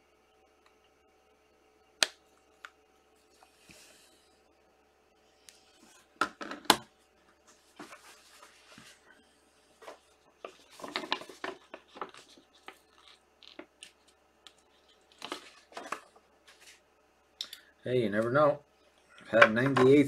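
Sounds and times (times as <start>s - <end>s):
cards rustling and scraping: 7.4s - 9.1s, 9.7s - 16.8s.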